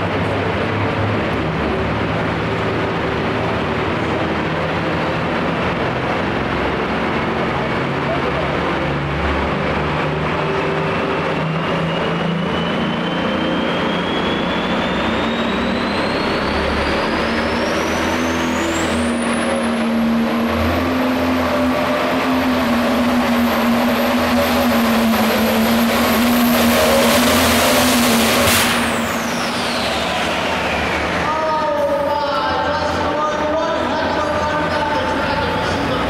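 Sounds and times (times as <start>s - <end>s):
diesel tractor engine under load: 0.0s - 36.0s
high turbo whistle: 10.9s - 32.0s
sharp bang: 27.0s - 30.6s.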